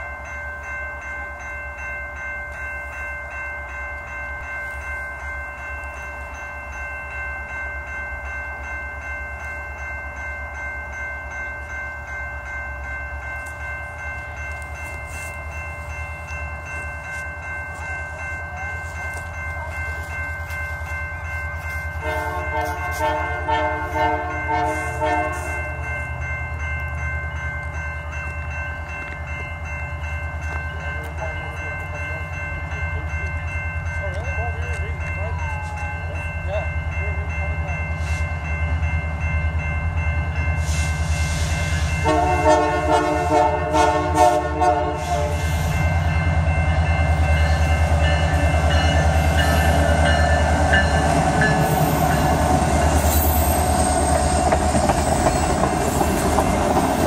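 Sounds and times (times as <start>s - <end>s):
level crossing bell ringing: 0.0s - 57.0s
locomotive rumble: 12.0s - 57.0s.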